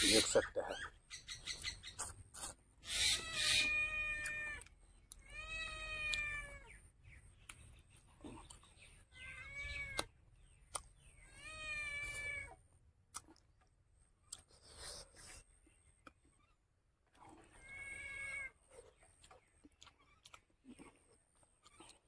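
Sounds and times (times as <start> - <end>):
cat meowing: 2.9 - 6.7, 9.1 - 10.1, 11.3 - 12.6.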